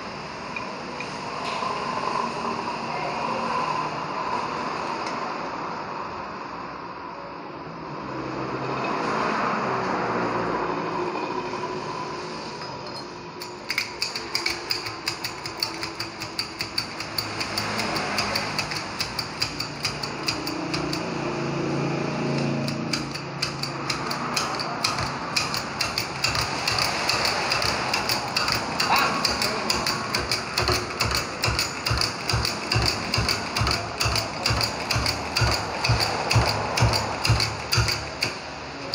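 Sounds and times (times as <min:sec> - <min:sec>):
hydraulic press pump clicks: 0:12.9 - 0:21.1, 0:22.4 - 0:38.9.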